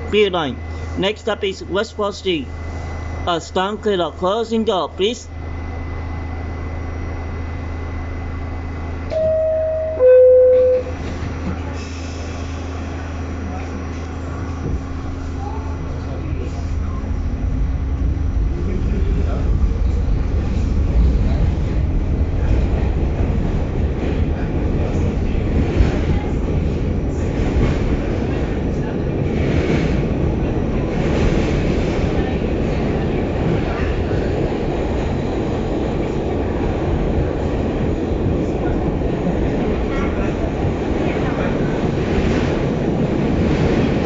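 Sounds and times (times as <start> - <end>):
subway wheels rumbling on track: 0.0 - 44.0
train car hum: 0.0 - 44.0
two-tone door chime: 9.1 - 11.0.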